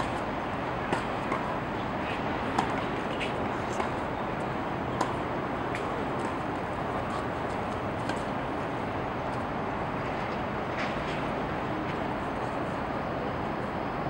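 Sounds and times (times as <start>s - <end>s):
steady background noise: 0.0s - 14.0s
tennis ball hit by racket: 0.9s - 4.0s, 5.0s - 6.4s
tennis ball bouncing: 0.9s - 4.1s, 4.9s - 7.2s, 8.0s - 8.3s.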